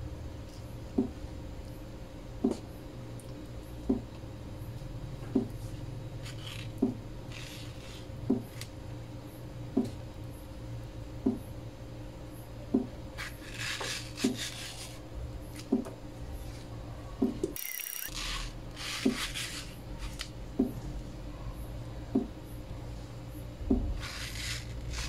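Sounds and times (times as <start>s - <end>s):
rubbing scraping sounds: 13.2s - 15.0s, 18.0s - 20.2s, 24.0s - 25.0s
knife slicing mango: 13.2s - 15.9s, 18.2s - 20.3s, 23.7s - 25.0s.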